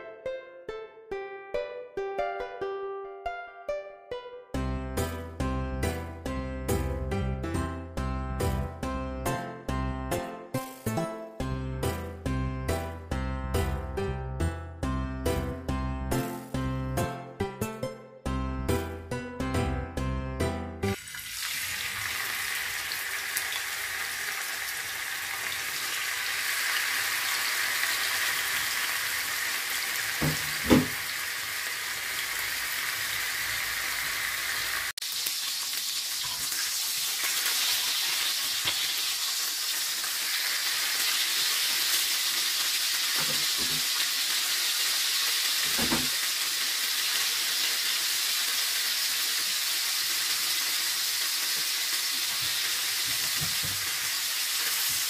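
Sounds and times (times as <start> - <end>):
meat sizzling in frying pan: 20.9 - 55.0.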